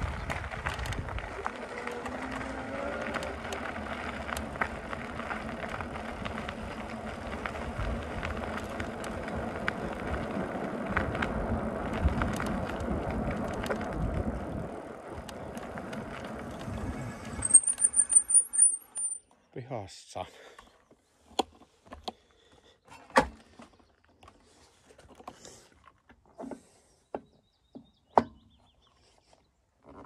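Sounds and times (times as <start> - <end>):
bike tyres rolling on gravel: 0.0 - 19.2
high squeal: 16.9 - 19.2.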